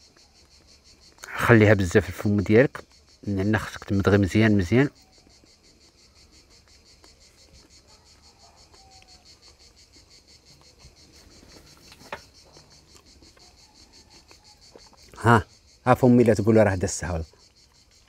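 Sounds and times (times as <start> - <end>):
insects chirping: 0.0 - 18.0.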